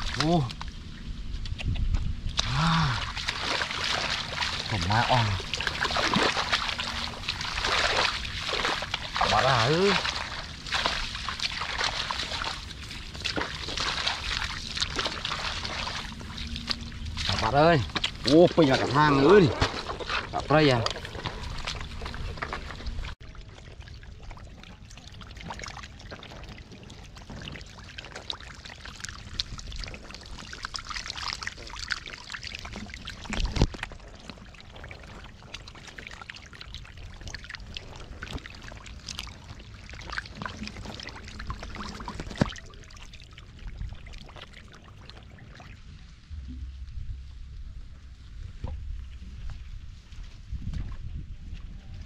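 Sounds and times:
muddy water splashing and trickling: 0:00.0 - 0:52.0
wet crackles of mud: 0:00.0 - 0:52.0
loud water splashes: 0:02.3 - 0:23.2, 0:27.1 - 0:47.2.

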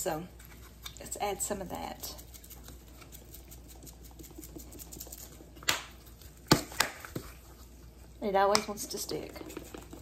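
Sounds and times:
cheese patter from shaker: 0:00.2 - 0:07.6.

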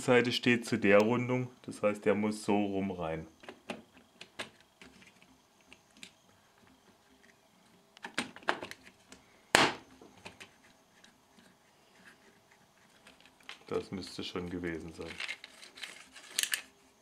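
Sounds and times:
plastic parts clicking and knocking: 0:03.4 - 0:07.3, 0:08.0 - 0:09.2, 0:12.8 - 0:16.7.

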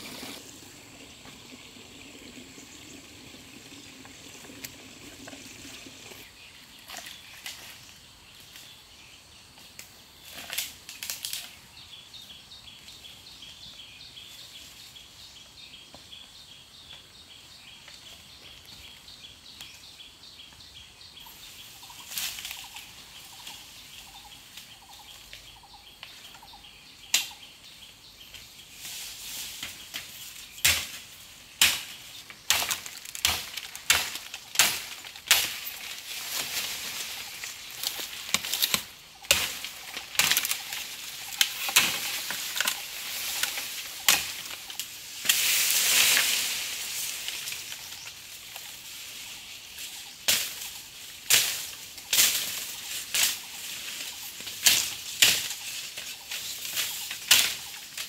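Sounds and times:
leaf litter and twigs snapping: 0:09.6 - 0:11.6, 0:28.4 - 0:58.0.

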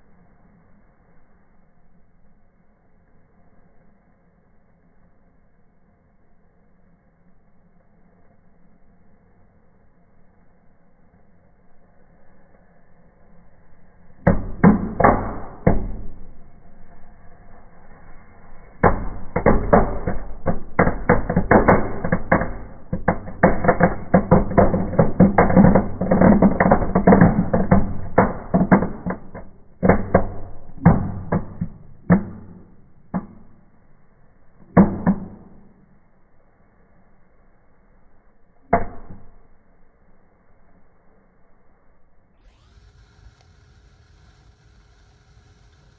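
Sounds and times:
fireplace fireworks crackling and banging: 0:14.2 - 0:33.8, 0:34.6 - 0:35.8, 0:42.6 - 0:45.9.

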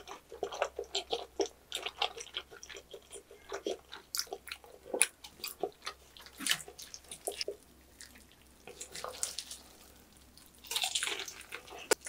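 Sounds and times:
wet chewing and lip smacks: 0:00.0 - 0:12.0
plastic gloves crinkling: 0:06.3 - 0:12.0.

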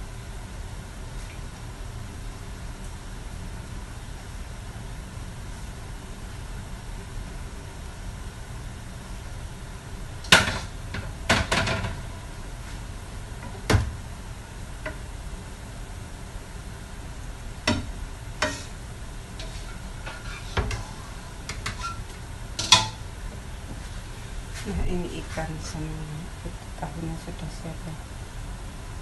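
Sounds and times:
steady low hiss: 0:00.0 - 0:29.0
spatula scraping a wok: 0:18.4 - 0:18.8, 0:19.4 - 0:22.8.

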